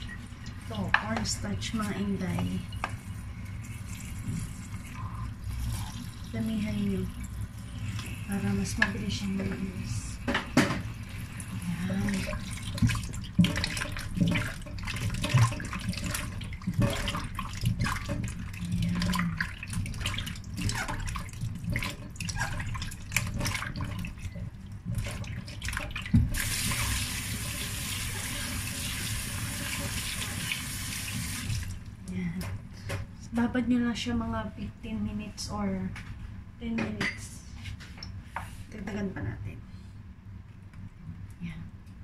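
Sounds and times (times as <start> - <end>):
tap water running into pot: 0.0 - 31.8.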